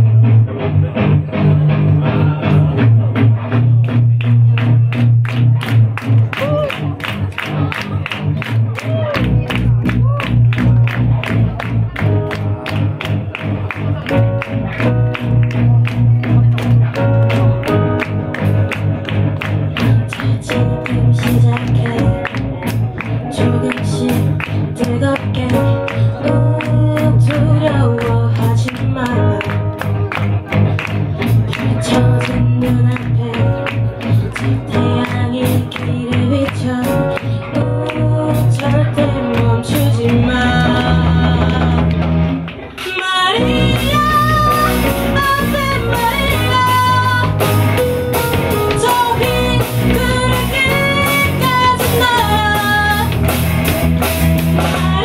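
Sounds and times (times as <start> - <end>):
keyboard accompaniment: 0.0 - 55.0
drum kit beat: 8.2 - 55.0
woman singing into microphone: 20.0 - 22.6, 23.2 - 30.0, 31.7 - 42.2, 42.8 - 47.7, 48.7 - 53.3, 54.6 - 55.0.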